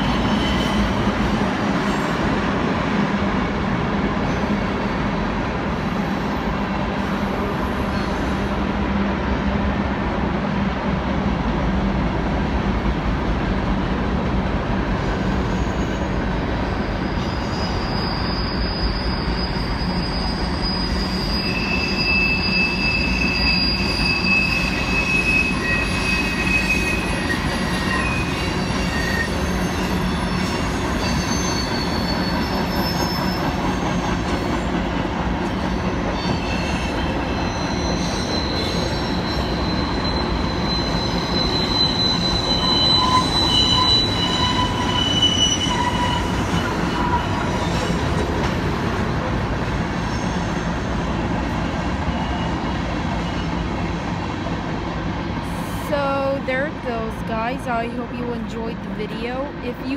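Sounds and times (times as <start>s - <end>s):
high-pitched wheel squeal: 0.0s - 1.1s, 15.1s - 34.7s, 35.5s - 48.8s, 50.0s - 51.0s
train wheels rumbling on rail: 0.0s - 59.9s.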